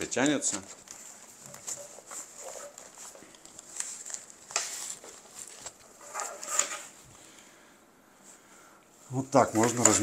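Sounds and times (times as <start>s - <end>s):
elastic fabric pouch rustling: 0.2s - 7.2s.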